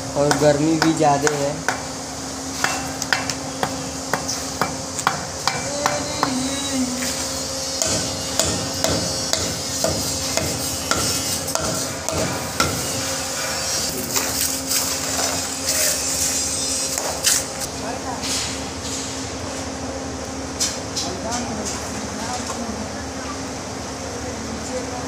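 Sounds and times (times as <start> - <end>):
steady hum: 0.0 - 25.0
hammer tapping masonry blocks: 0.2 - 1.9.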